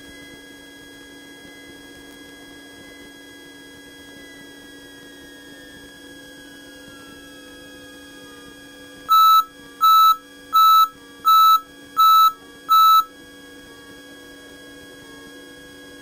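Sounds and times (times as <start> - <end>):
high electronic beeps: 9.1 - 13.1.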